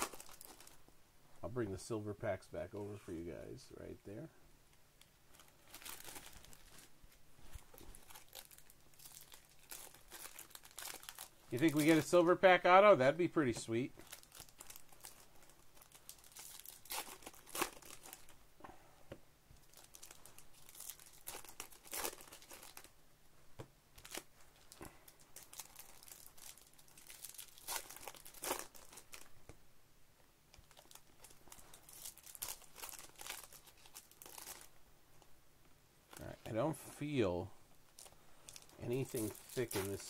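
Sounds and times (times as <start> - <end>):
foil wrapper crinkling and tearing: 0.0 - 0.8, 5.3 - 6.9, 7.7 - 12.3, 14.0 - 18.4, 19.6 - 22.9, 24.0 - 29.3, 30.5 - 34.7, 37.9 - 40.0.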